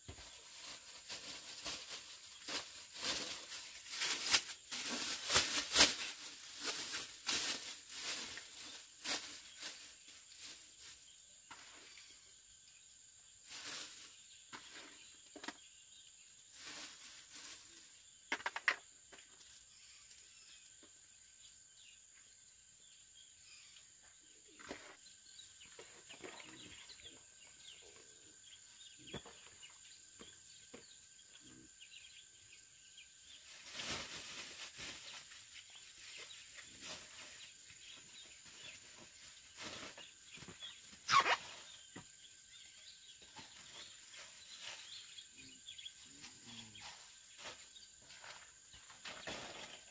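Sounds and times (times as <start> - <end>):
rustling: 0.0 - 12.0, 13.4 - 15.1, 16.5 - 18.6, 33.3 - 41.9
insects droning: 0.0 - 49.9.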